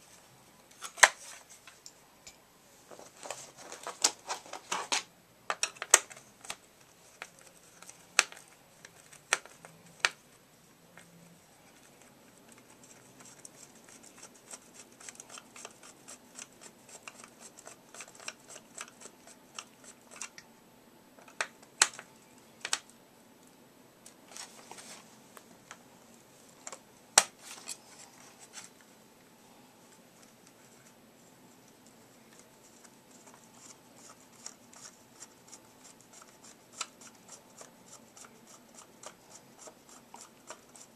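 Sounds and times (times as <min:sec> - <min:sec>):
plastic parts clicking and scraping: 0:03.2 - 0:10.2, 0:10.9 - 0:20.4, 0:21.2 - 0:22.9.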